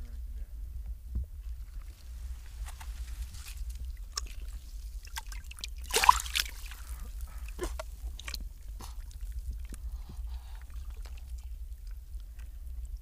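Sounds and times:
water dripping and sloshing: 0:01.7 - 0:13.0
flipper splash: 0:05.2 - 0:06.7.

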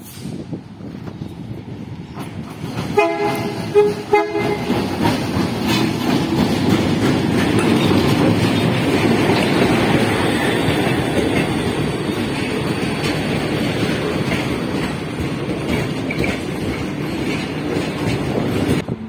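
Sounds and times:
locomotive passing: 0:01.5 - 0:19.0
locomotive horn: 0:03.0 - 0:04.8.

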